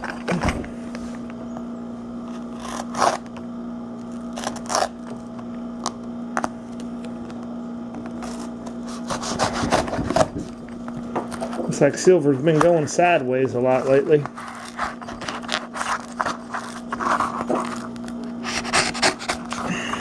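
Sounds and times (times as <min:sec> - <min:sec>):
steady low hum: 0:00.0 - 0:20.0
knife slitting packing tape: 0:02.4 - 0:03.4, 0:04.1 - 0:05.1, 0:08.2 - 0:10.4, 0:14.2 - 0:19.7.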